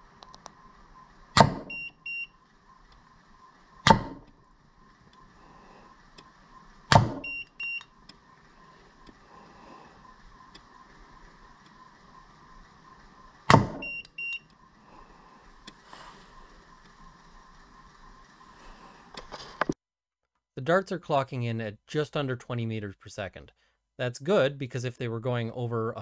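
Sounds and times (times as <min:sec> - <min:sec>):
short electronic beeps: 0:01.7 - 0:02.4, 0:07.2 - 0:07.9, 0:13.8 - 0:14.5
dart launcher snapping: 0:03.9 - 0:04.2.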